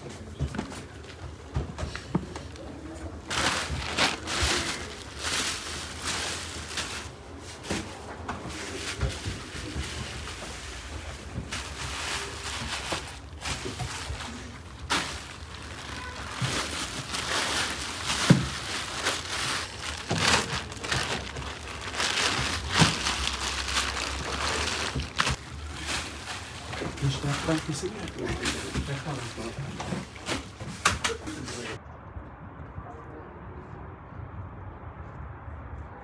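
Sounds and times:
plastic bags rustling: 2.1s - 31.8s.

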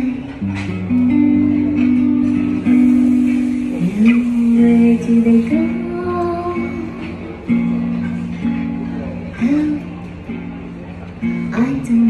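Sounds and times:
woman singing a ballad: 0.0s - 0.4s, 3.8s - 7.4s, 9.4s - 9.9s, 11.5s - 12.0s
nylon-string guitar: 0.0s - 12.0s.

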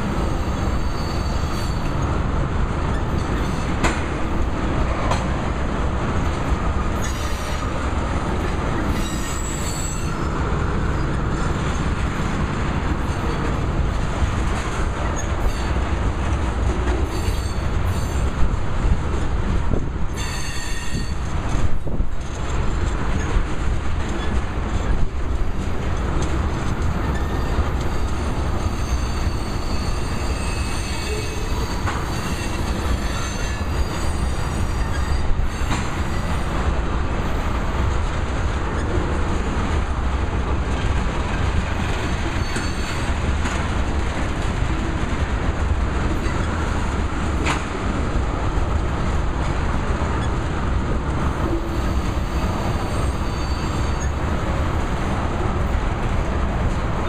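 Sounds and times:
train wheels rumbling on rail: 0.0s - 57.0s
high-pitched wheel squeal: 0.2s - 1.9s, 8.9s - 10.4s, 20.2s - 21.2s, 27.1s - 36.5s, 42.4s - 43.1s, 51.5s - 54.2s.

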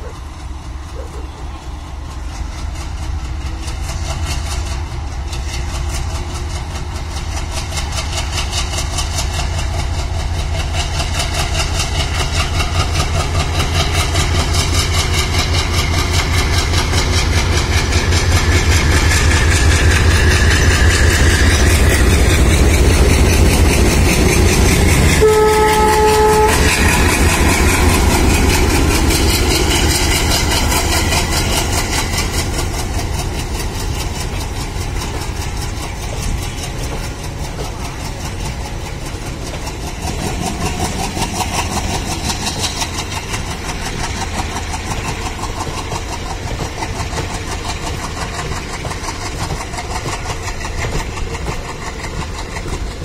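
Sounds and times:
diesel locomotive engine working hard: 0.0s - 53.0s
train horn blast: 25.1s - 27.0s.

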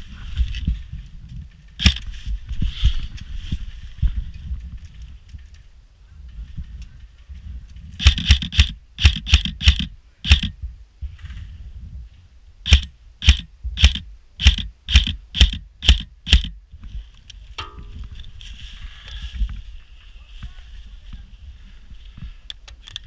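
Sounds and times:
airsoft rifle shots: 1.8s - 2.0s, 8.0s - 10.5s, 12.7s - 16.6s.

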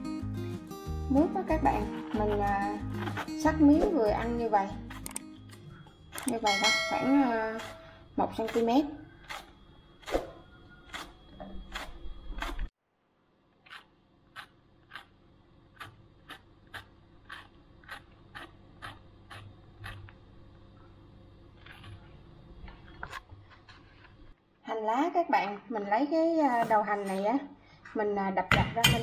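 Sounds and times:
knife slicing gourd: 1.6s - 4.0s.

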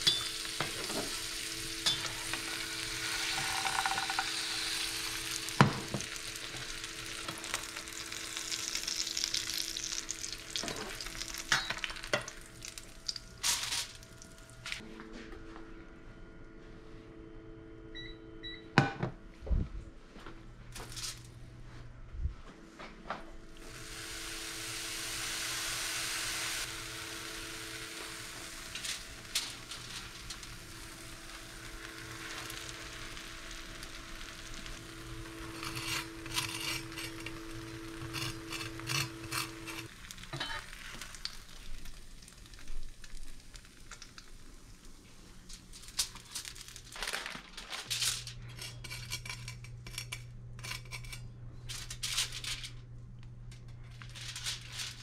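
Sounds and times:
cheese sizzling in frying pan: 0.0s - 14.8s, 23.6s - 47.3s
steady whine: 26.6s - 40.6s
knife scraping sandwich and foil: 35.3s - 40.7s, 45.7s - 52.7s, 53.8s - 55.0s.

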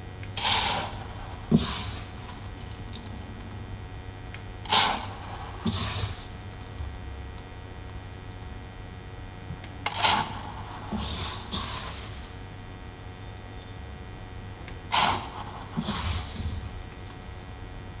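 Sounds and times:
low steady hum: 0.0s - 18.0s
rustling and scraping handling: 0.4s - 3.0s, 4.7s - 6.3s, 9.9s - 12.4s, 14.9s - 17.1s.

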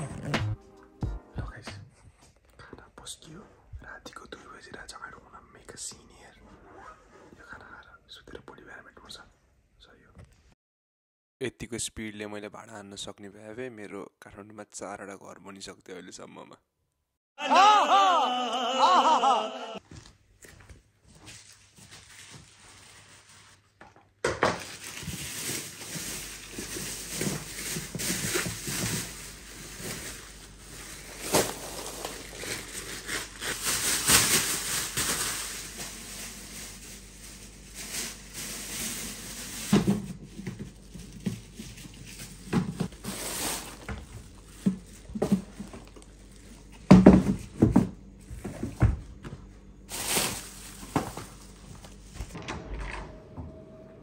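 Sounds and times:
plastic bin liner rustling: 24.5s - 46.0s, 49.9s - 52.2s.

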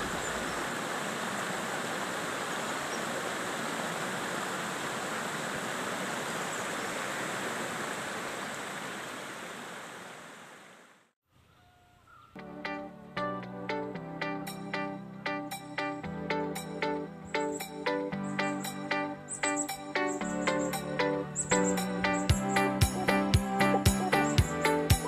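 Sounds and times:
stream water rushing: 0.0s - 11.1s
plucked string music: 12.4s - 25.0s.

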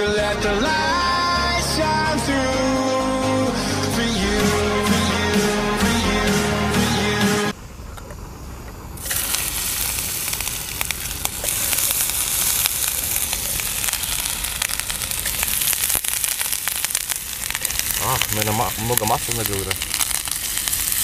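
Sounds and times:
sausage sizzling in frying pan: 9.0s - 21.0s.

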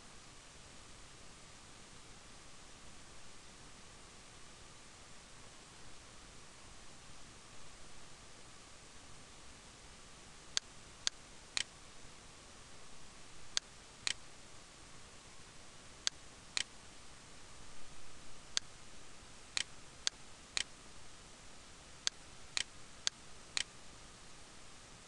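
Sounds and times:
faint hiss: 0.0s - 25.0s
computer mouse clicking: 13.5s - 14.2s.

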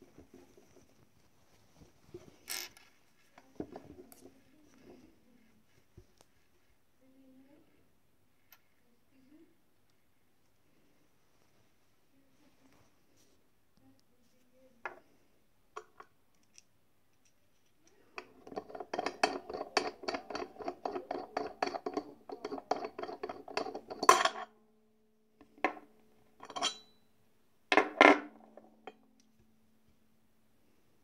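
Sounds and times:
steel dies clinking in hand: 26.4s - 26.9s.

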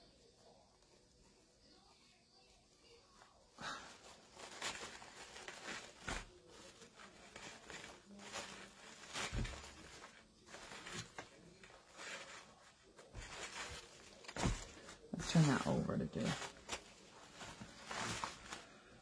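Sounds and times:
fabric rustling and crinkling: 0.3s - 19.0s.

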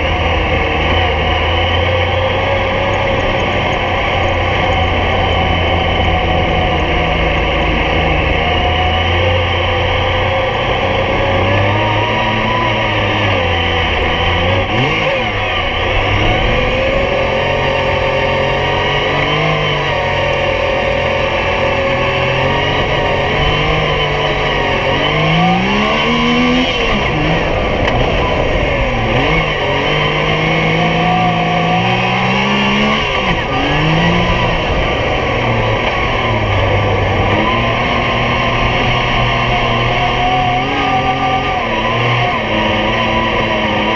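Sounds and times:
engine running hard: 0.0s - 43.9s.

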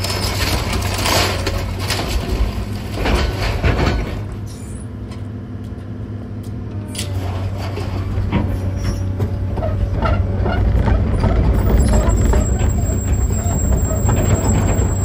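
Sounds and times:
debris crashing and clattering: 0.0s - 4.3s
diesel machinery running: 0.0s - 15.0s.

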